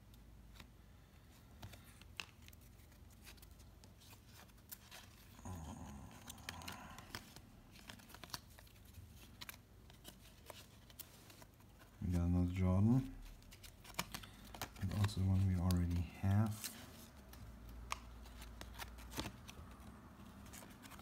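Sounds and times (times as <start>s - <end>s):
cardboard cards sliding and ticking: 6.0s - 12.2s, 12.8s - 21.0s.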